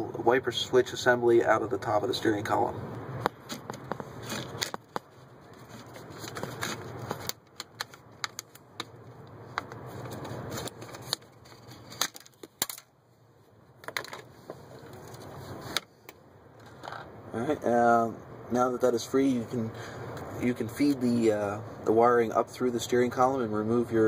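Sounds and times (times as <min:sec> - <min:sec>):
plastic connectors clicking and rattling: 0:05.7 - 0:08.9, 0:09.6 - 0:12.9.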